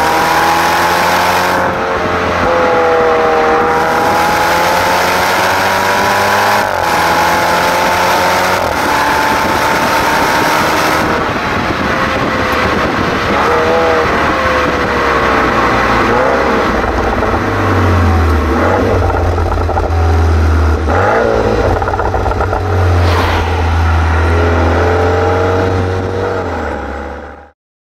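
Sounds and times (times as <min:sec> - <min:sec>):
car exhaust drone: 0:00.0 - 0:27.3
short sharp noise: 0:22.0 - 0:25.2.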